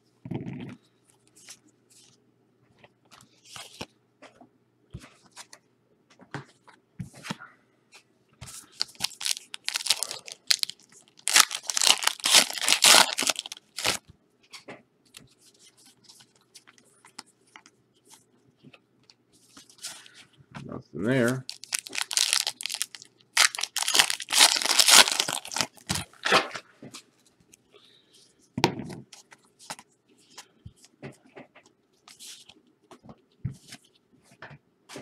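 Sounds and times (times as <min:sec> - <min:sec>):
card pack wrappers crinkling and tearing: 0:08.6 - 0:14.0, 0:21.3 - 0:26.4.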